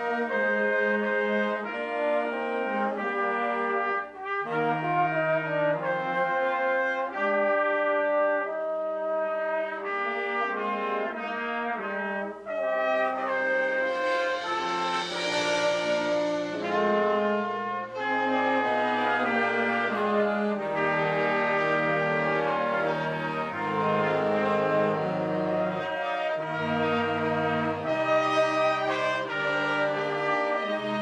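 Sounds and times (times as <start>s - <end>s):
cymbal: 12.5s - 31.0s
concert band playing held chords: 13.2s - 30.9s.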